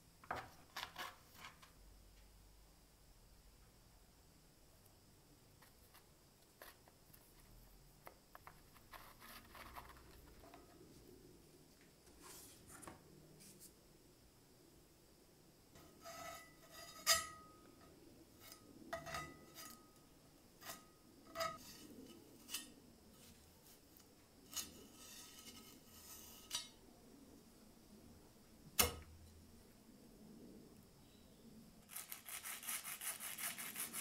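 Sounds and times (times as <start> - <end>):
metal spatula scraping steel plate: 15.8 - 17.7, 18.4 - 20.0, 20.6 - 22.8, 24.5 - 26.8.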